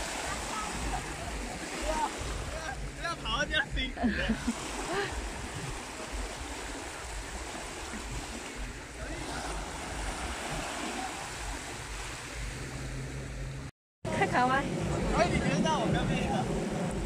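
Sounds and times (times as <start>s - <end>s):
small waves washing: 0.0s - 17.0s
wind rumble on microphone: 0.0s - 17.0s.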